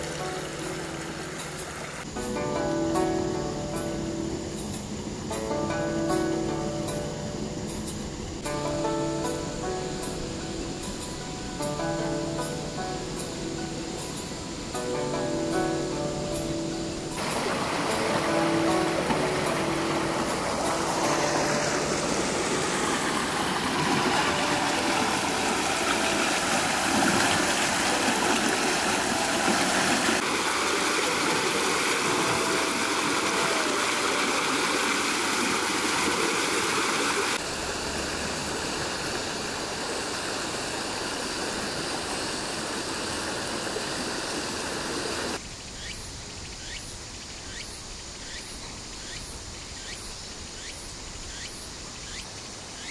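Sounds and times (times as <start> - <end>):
water rushing in a channel: 0.0 - 2.1, 17.1 - 45.4
insects chirping: 0.0 - 52.9.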